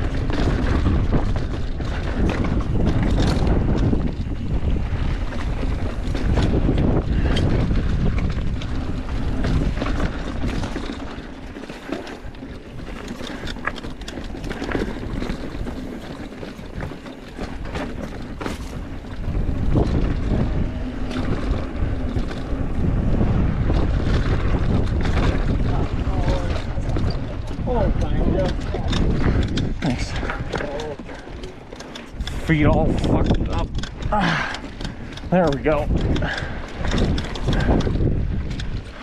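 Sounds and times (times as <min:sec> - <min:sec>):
bike rattling over rocks: 0:00.0 - 0:39.0
wind buffeting microphone: 0:00.0 - 0:39.0.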